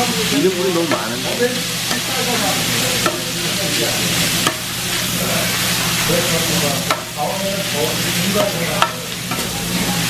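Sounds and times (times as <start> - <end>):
fried rice sizzling on griddle: 0.0 - 10.0
metal spatula clacking on pan: 4.4 - 4.7, 6.8 - 7.2, 8.4 - 9.5.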